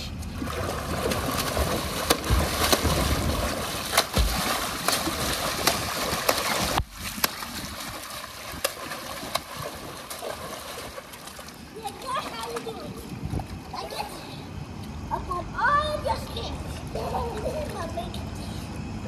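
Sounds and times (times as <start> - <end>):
child splashing pool water: 0.0 - 14.5, 15.6 - 18.4
slaps on water: 1.0 - 10.5.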